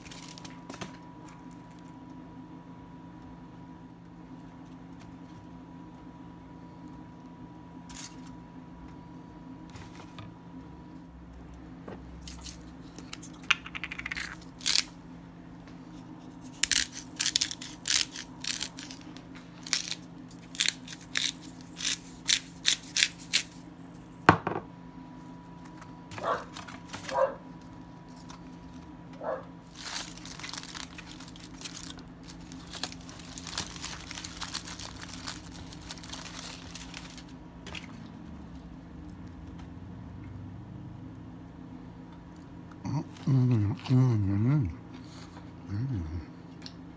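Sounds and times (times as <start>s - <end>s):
foil and paper crinkling: 0.0s - 1.9s, 16.4s - 23.6s, 26.2s - 27.4s, 29.6s - 37.8s
steady low hum: 0.0s - 46.9s.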